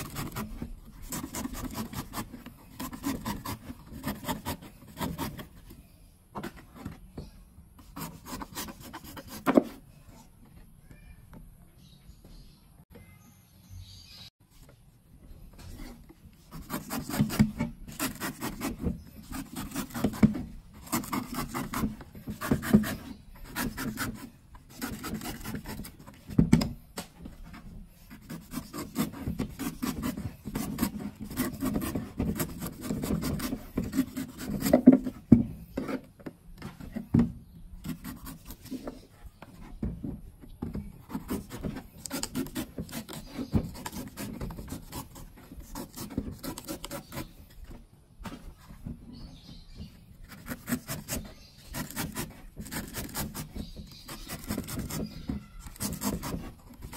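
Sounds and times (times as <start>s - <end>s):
knife scraping coconut husk: 0.0s - 5.7s, 15.7s - 26.2s, 27.4s - 36.1s, 37.8s - 39.1s, 41.0s - 47.6s, 50.2s - 56.9s.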